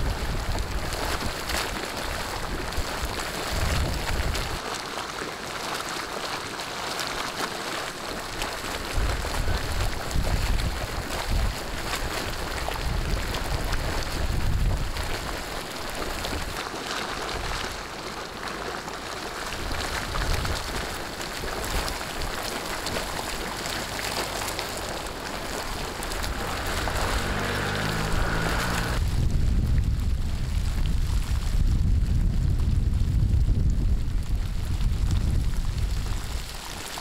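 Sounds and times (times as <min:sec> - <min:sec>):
wind rumbling on microphone: 0:00.0 - 0:04.6, 0:08.1 - 0:37.0
spring water bubbling: 0:00.0 - 0:29.0.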